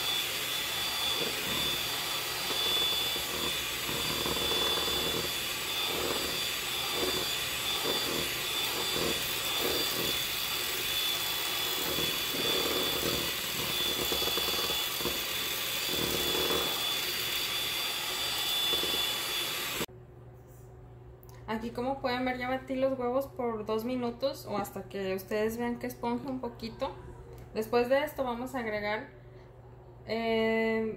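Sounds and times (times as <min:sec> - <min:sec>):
electric hand mixer whining: 0:00.0 - 0:19.9.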